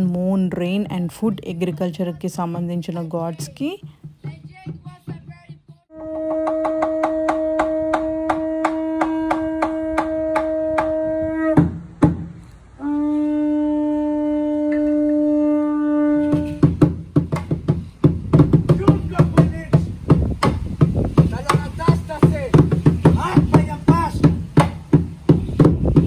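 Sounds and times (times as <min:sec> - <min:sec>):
drum struck steadily: 0:00.3 - 0:12.4, 0:16.2 - 0:26.0
quick percussion hits: 0:02.4 - 0:12.4, 0:16.2 - 0:26.0
conch shell trumpet blown: 0:05.9 - 0:11.7, 0:12.8 - 0:16.9.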